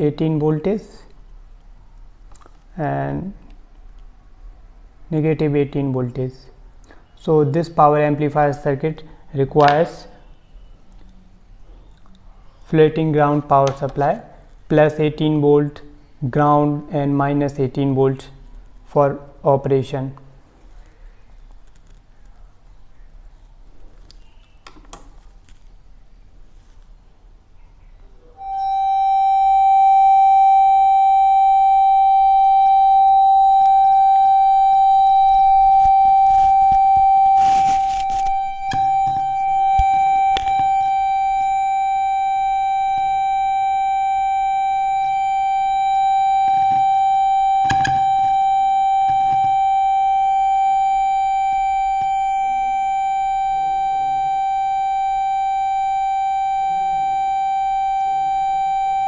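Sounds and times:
steady test tone from loudspeaker: 0:28.3 - 0:59.0
rustling: 0:35.4 - 0:40.9.

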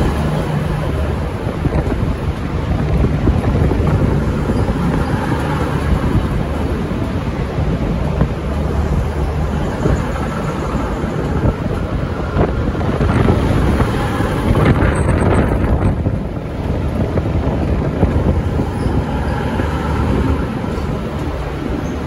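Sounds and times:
train rolling past: 0:00.0 - 0:22.0
wind buffeting microphone: 0:00.0 - 0:22.0.

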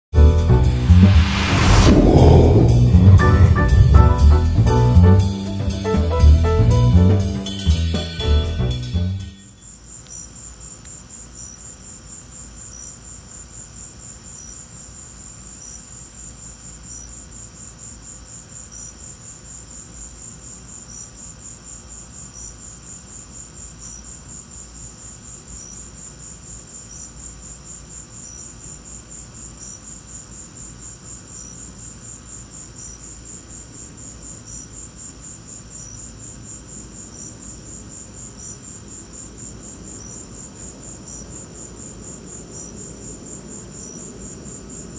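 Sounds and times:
crickets trilling: 0:09.5 - 0:44.9.

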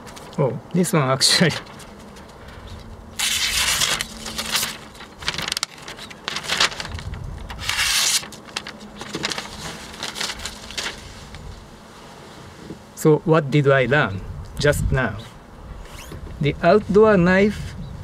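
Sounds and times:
paper rustling and crinkling: 0:00.0 - 0:00.4, 0:01.2 - 0:11.7
knife slicing newspaper: 0:03.2 - 0:06.8, 0:07.6 - 0:10.5.

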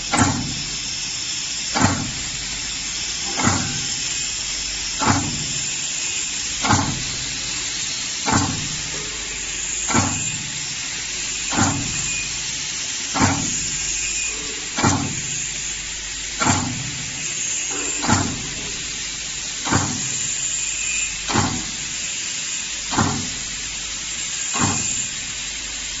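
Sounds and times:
machine hiss: 0:00.0 - 0:26.0
stamping cutter knocking: 0:00.1 - 0:00.6, 0:01.8 - 0:02.2, 0:03.3 - 0:04.0, 0:06.6 - 0:07.2, 0:08.2 - 0:09.2, 0:09.9 - 0:10.4, 0:11.5 - 0:12.2, 0:13.2 - 0:13.7, 0:14.4 - 0:15.4, 0:16.4 - 0:17.0, 0:17.7 - 0:18.8, 0:19.7 - 0:20.2, 0:21.3 - 0:21.8, 0:22.9 - 0:23.4.

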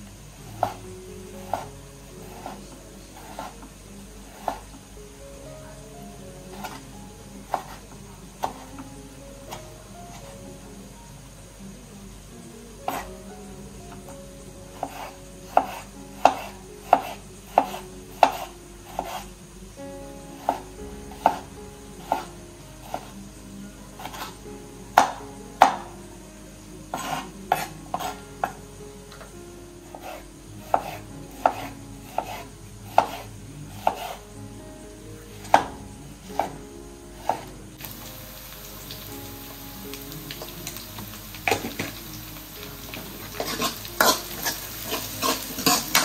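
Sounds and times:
knife chopping on wooden board: 0:14.8 - 0:19.2, 0:30.0 - 0:32.4, 0:33.0 - 0:33.2, 0:33.8 - 0:34.2.

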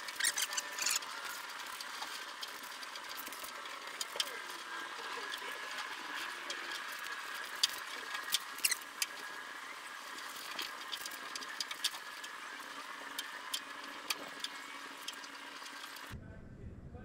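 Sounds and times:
rubber seal clicks and squeaks: 0:00.0 - 0:01.4, 0:07.6 - 0:09.2.

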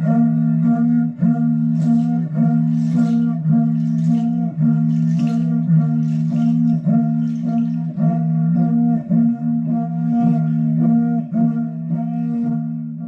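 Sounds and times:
light percussion: 0:00.0 - 0:12.8.

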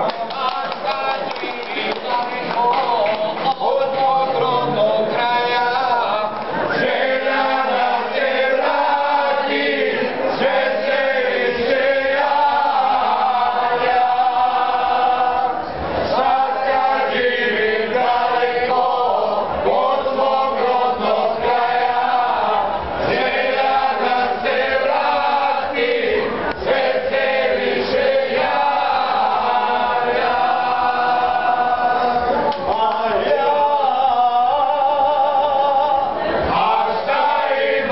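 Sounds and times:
men singing a folk song: 0:00.0 - 0:37.9.

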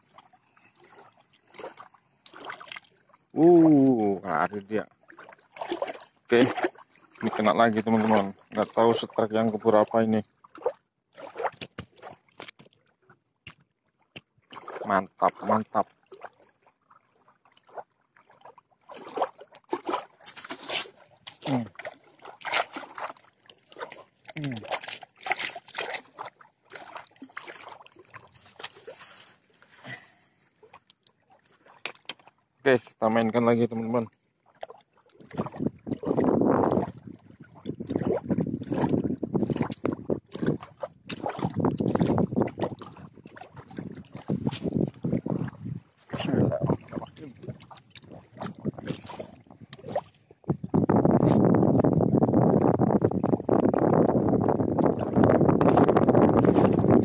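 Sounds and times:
small waves lapping shore: 0:00.0 - 0:12.8, 0:14.5 - 0:32.6, 0:33.9 - 0:50.5
shallow water splashing: 0:00.0 - 0:57.0
wind buffeting microphone: 0:35.4 - 0:47.6, 0:48.2 - 0:57.0.

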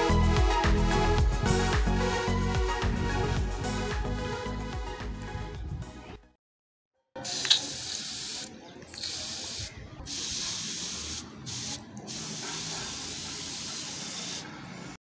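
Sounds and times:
pressure sprayer hissing: 0:07.2 - 0:14.6.

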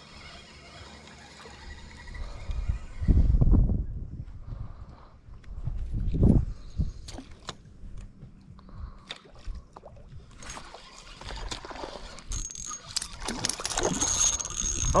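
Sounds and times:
fishing reel whine: 0:00.0 - 0:03.4, 0:10.3 - 0:15.0
fishing reel clicks: 0:10.4 - 0:15.0.

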